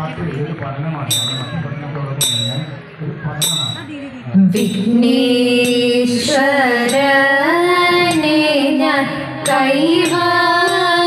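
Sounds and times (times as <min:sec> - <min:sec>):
woman singing slow melody: 0:04.5 - 0:11.0.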